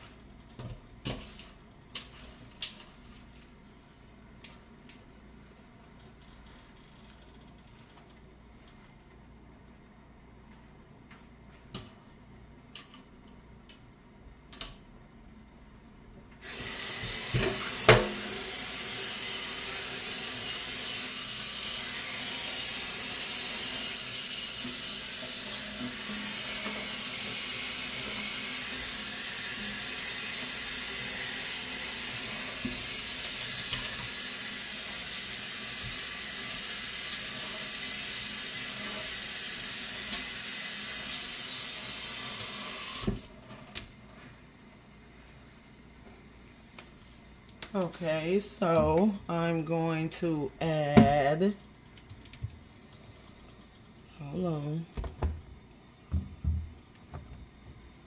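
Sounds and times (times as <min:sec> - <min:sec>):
water running from kitchen tap: 0:16.4 - 0:43.2.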